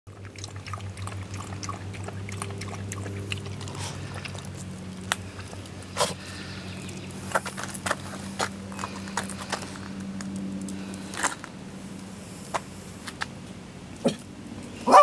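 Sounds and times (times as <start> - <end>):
dog lapping water from metal bowl: 0.1 - 6.2
steady low hum: 0.1 - 14.9.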